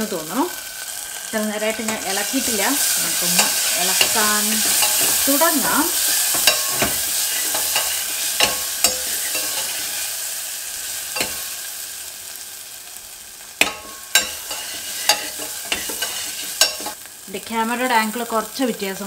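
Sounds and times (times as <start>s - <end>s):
food sizzling in oil: 0.0s - 19.0s
spoon clinking and scraping pot: 1.9s - 10.1s, 11.1s - 11.6s, 13.6s - 17.0s.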